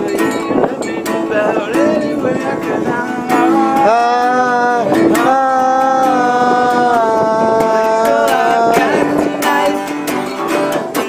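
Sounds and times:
acoustic stringed instrument strumming: 0:00.0 - 0:11.0
person singing long notes: 0:00.0 - 0:11.0.

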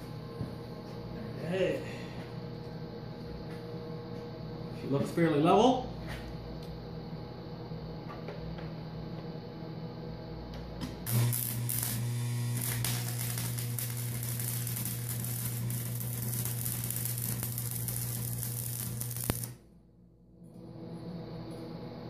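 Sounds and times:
welding arc humming and crackling: 0:00.0 - 0:07.2, 0:10.3 - 0:19.9
faint mains hum: 0:00.0 - 0:22.0.

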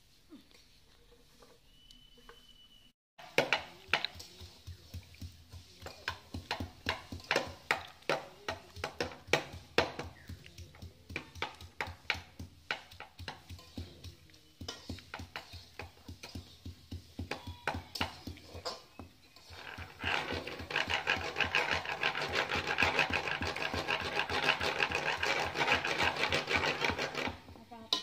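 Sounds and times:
stone pounding on wooden board: 0:14.6 - 0:27.4.

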